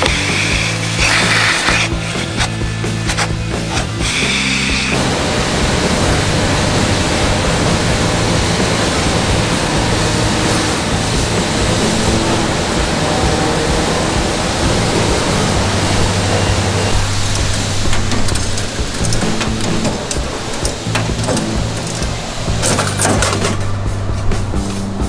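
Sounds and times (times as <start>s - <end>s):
background music: 0.0s - 25.0s
car wash vacuum rushing: 0.0s - 25.0s.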